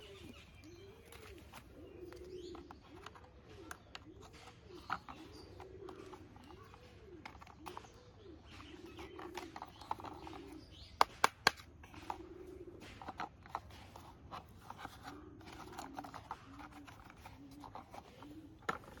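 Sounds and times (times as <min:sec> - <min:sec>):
plastic toy clicking: 0:09.1 - 0:12.1, 0:12.9 - 0:19.0.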